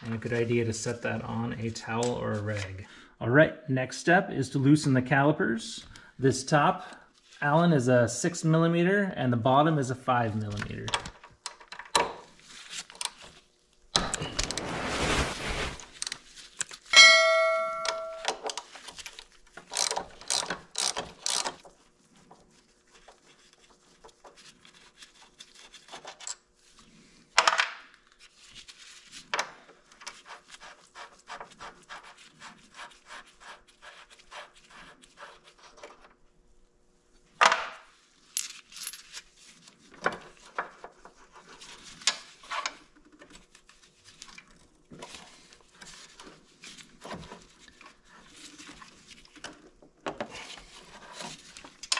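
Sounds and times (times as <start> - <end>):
metallic ring: 17.0 - 18.4
metal tools clinking: 17.0 - 18.5.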